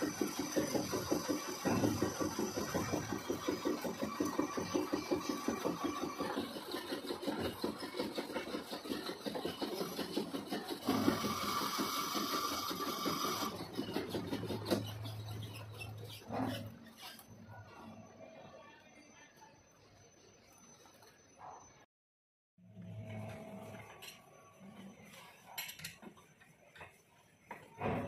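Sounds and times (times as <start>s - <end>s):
lathe running hum: 0.0s - 15.6s
lathe cutting chatter: 0.0s - 17.2s.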